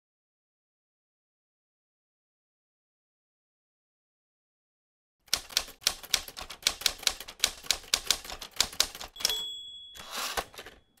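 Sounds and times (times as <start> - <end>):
typewriter key strikes: 5.3 - 11.0
typewriter bell ding: 9.0 - 11.0
typewriter carriage sliding back: 10.0 - 10.9.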